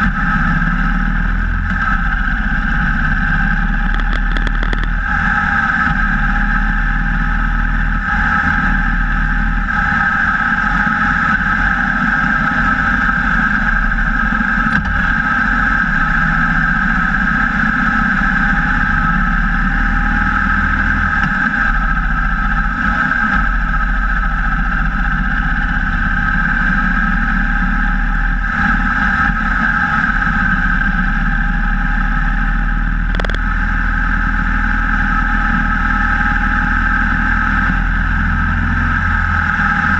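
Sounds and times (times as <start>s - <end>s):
motorcycle engine: 0.0s - 39.9s
wind noise: 0.0s - 39.9s.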